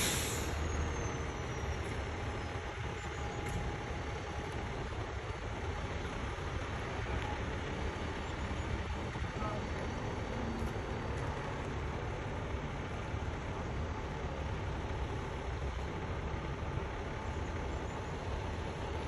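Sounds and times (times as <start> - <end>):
diesel truck engine running: 0.0 - 19.0.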